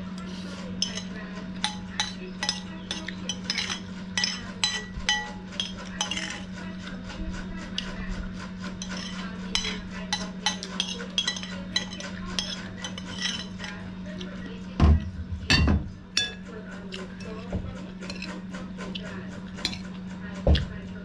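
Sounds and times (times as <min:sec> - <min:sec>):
low steady hum: 0:00.0 - 0:21.0
spoon scraping ceramic plate: 0:00.2 - 0:07.0, 0:07.6 - 0:14.3, 0:17.0 - 0:20.0.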